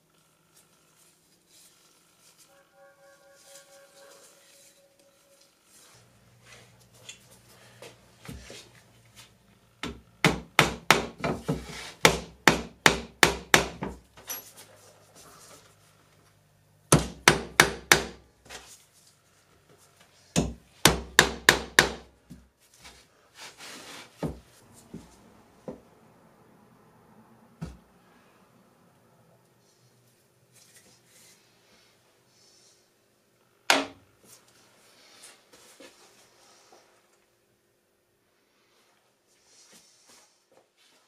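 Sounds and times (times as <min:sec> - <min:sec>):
hammer striking nail into wood: 0:09.8 - 0:14.0, 0:16.9 - 0:18.2, 0:20.4 - 0:22.1.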